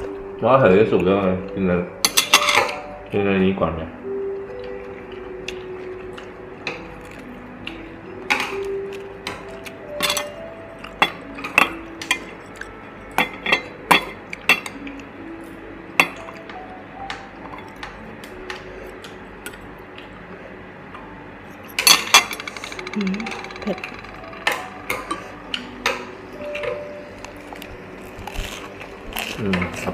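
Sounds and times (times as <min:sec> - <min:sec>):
metal chopsticks clinking: 0:13.2 - 0:14.9.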